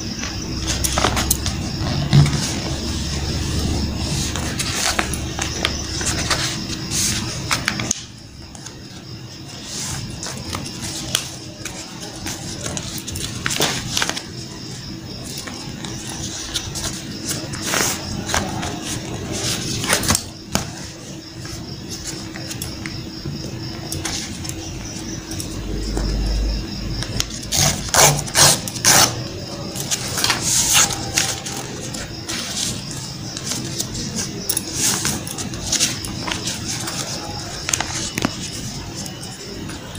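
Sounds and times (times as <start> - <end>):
low background hum: 0.0 - 39.9
paper rustling and crinkling: 0.2 - 26.0, 27.1 - 39.9.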